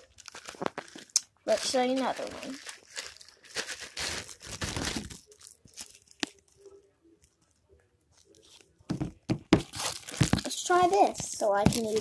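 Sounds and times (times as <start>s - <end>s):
handling rustling: 0.0s - 12.0s
knock: 8.9s - 9.7s.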